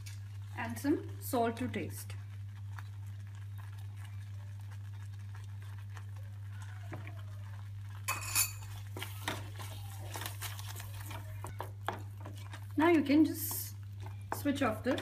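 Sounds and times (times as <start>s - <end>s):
wooden spatula stirring: 0.0s - 15.0s
spoon clinking against bowl: 8.1s - 8.7s.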